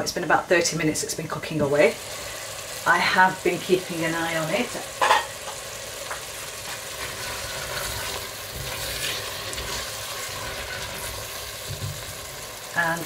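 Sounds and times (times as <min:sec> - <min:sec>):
curry sizzling in a pot: 0:00.0 - 0:13.0
spatula stirring: 0:06.6 - 0:12.5.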